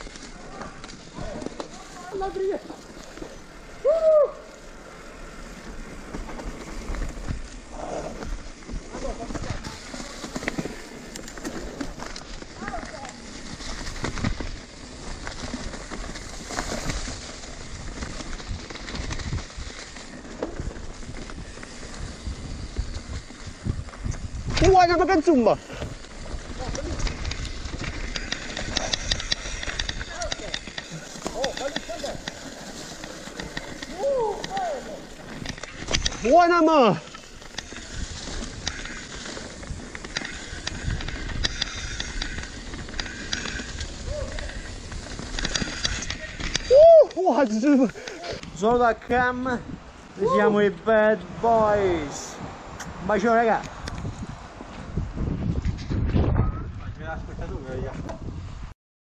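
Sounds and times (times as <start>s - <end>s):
bike clicks and rattles: 0.0s - 49.7s
tyres crackling through dry leaves: 0.0s - 55.2s
bike clicks and knocks: 25.7s - 36.3s, 37.1s - 48.6s.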